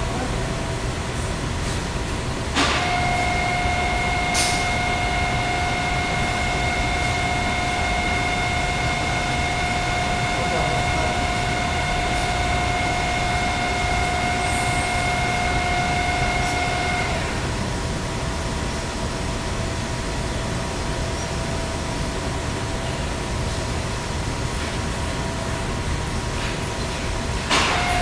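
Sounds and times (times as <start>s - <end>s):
low machine whine: 0.0s - 28.0s
machine shop rush: 1.0s - 17.7s, 26.2s - 28.0s
high machine whines: 2.0s - 24.4s, 25.1s - 28.0s.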